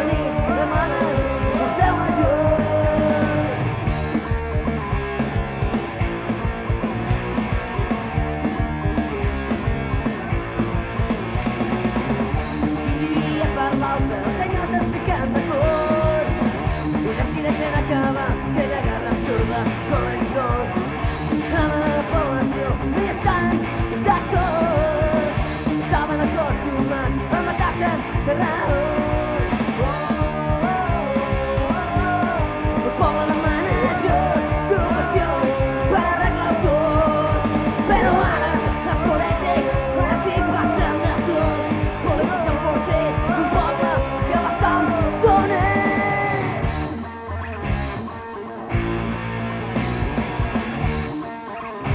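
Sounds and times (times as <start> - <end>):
man singing: 0.0 - 3.6, 12.7 - 46.7
rock band playing: 0.0 - 51.9.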